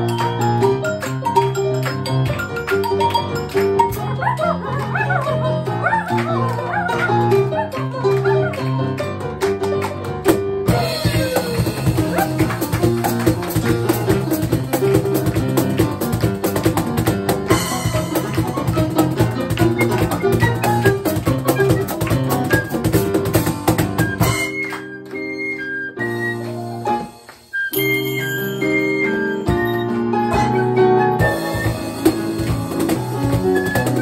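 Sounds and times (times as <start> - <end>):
piano chords: 0.0 - 34.0
flute melody: 2.3 - 9.1, 10.7 - 13.3, 17.5 - 34.0
drum and cymbal hits: 10.7 - 19.4.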